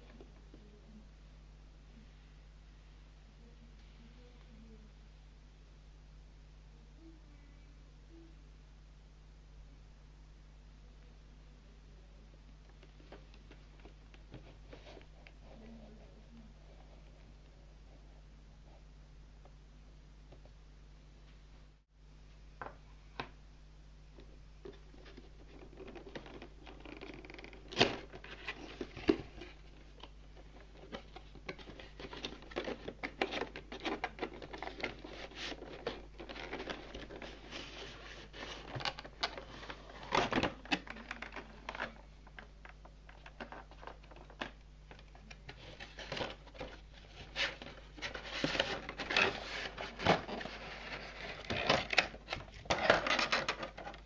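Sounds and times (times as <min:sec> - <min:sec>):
plastic and cardboard rustling: 0:12.7 - 0:17.5, 0:24.2 - 0:54.0.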